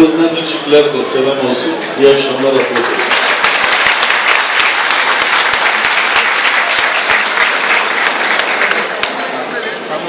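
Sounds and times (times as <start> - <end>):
audience applauding: 2.5 - 9.3.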